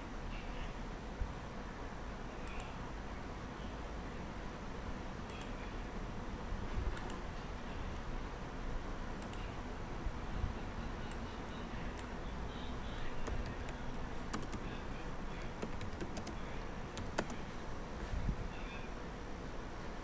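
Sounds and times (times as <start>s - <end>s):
keyboard key clicks: 13.0s - 14.6s.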